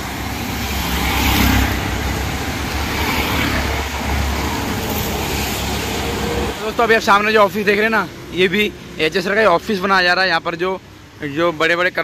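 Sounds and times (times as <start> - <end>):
traffic on wet road: 0.0 - 12.0.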